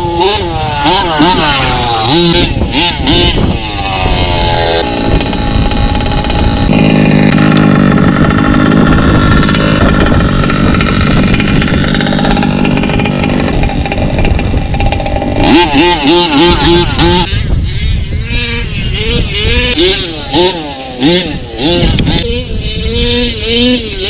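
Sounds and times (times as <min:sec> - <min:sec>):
two-stroke engine running: 0:00.0 - 0:24.0.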